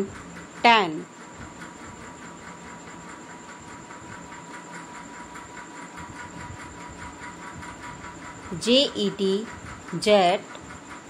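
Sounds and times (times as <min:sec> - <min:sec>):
fast faint ticking: 0:00.0 - 0:11.0
faint high-pitched hum: 0:08.5 - 0:10.6.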